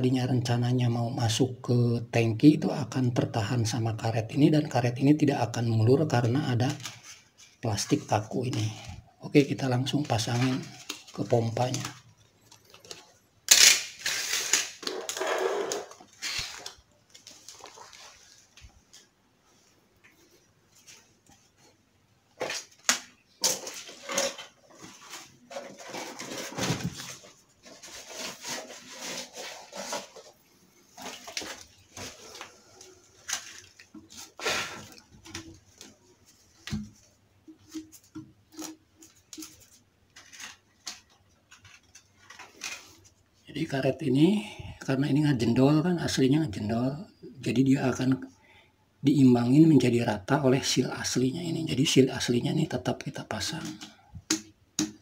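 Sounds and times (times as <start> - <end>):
plastic sheets rustling and scraping: 6.1 - 43.4, 52.2 - 54.0.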